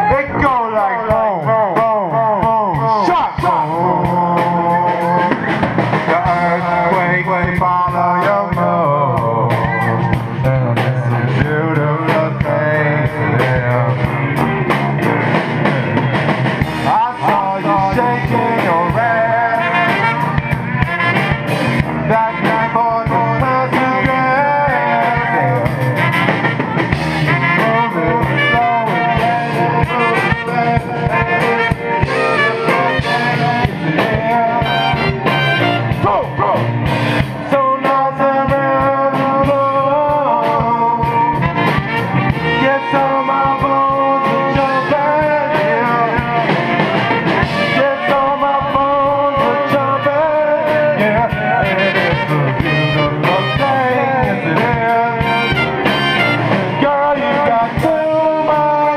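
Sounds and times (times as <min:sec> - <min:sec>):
man singing into a microphone: 0:00.0 - 0:16.1, 0:16.8 - 0:20.9, 0:21.7 - 0:58.9
acoustic guitar: 0:00.0 - 0:58.9
drum kit: 0:00.0 - 0:58.9
trumpet: 0:00.0 - 0:58.9
tuba: 0:00.0 - 0:58.9
saxophone: 0:12.3 - 0:58.9.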